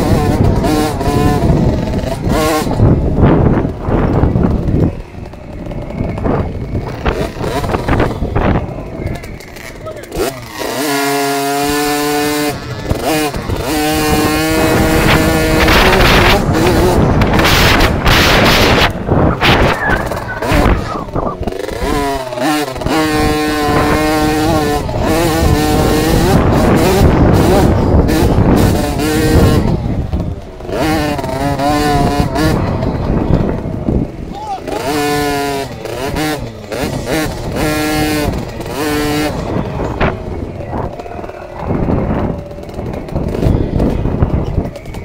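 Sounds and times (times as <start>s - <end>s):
wind rush on microphone: 0.0s - 9.5s, 11.4s - 45.0s
two-stroke engine revving: 0.0s - 45.0s.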